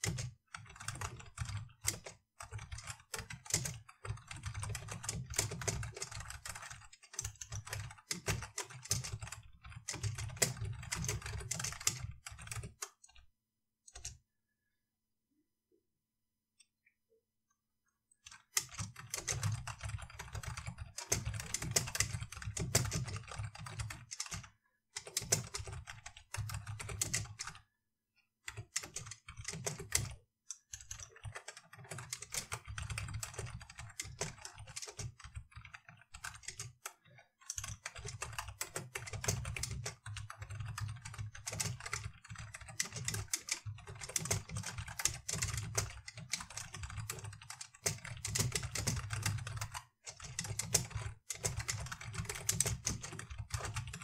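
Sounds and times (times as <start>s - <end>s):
typing on computer keyboard: 0.0s - 13.3s, 13.9s - 14.2s, 18.2s - 27.7s, 28.4s - 54.0s.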